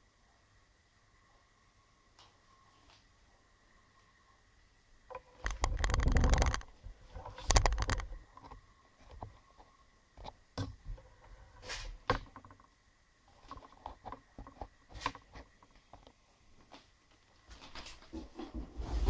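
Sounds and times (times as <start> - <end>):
short clicks and crackles: 5.1 - 9.3.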